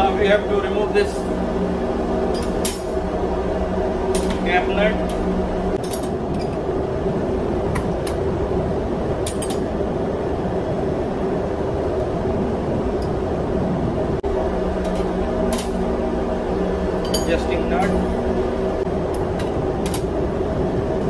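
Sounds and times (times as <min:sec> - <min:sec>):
machinery hum: 0:00.0 - 0:21.0
spanners clinking on metal: 0:17.0 - 0:17.5.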